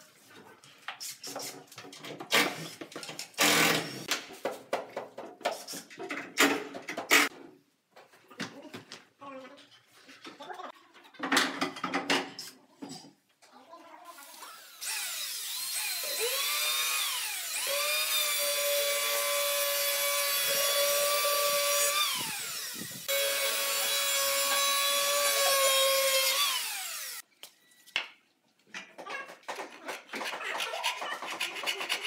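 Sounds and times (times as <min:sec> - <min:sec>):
electric planer cutting wood: 0:14.6 - 0:27.2.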